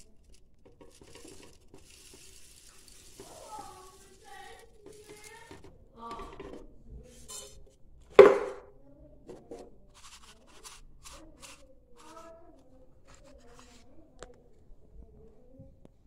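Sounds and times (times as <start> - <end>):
plastic dish rattling and scraping: 0.0 - 7.5, 9.4 - 13.8
sharp knock of dish set down: 8.2 - 8.6.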